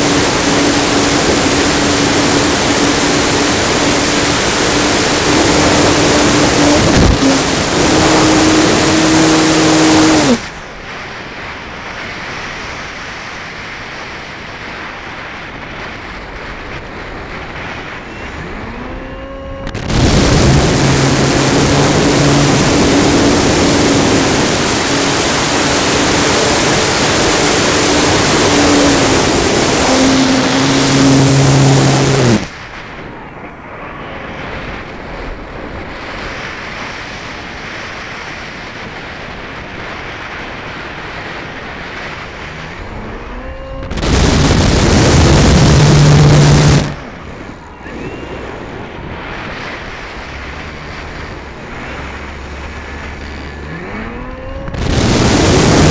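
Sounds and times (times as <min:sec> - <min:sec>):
electric motor whine: 0:00.0 - 0:10.6, 0:18.0 - 0:32.5, 0:42.2 - 0:48.9, 0:49.8 - 0:55.9
wind rush: 0:00.0 - 0:55.9.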